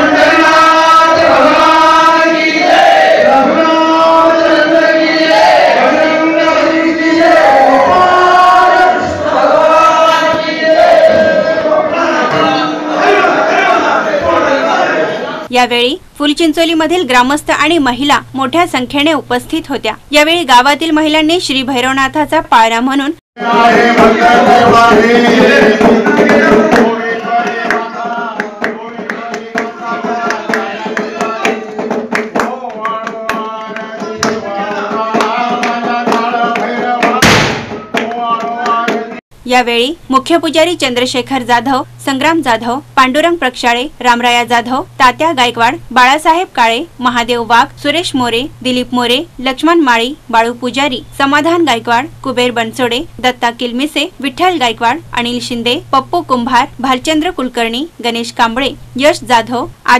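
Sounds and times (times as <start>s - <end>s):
crowd noise: 0.0s - 15.5s
group singing a chant in unison: 0.0s - 15.5s, 23.4s - 39.2s
sharp hand claps: 26.2s - 34.4s, 35.2s - 39.2s.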